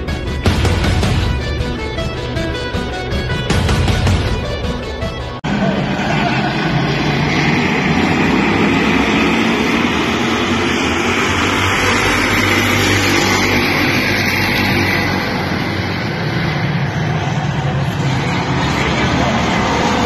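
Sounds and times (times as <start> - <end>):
race car engines roaring: 0.0 - 20.0.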